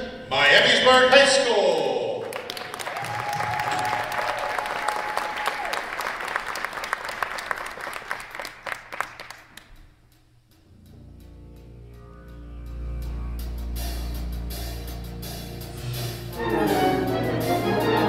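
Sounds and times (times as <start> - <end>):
audience applauding: 1.7 - 9.8.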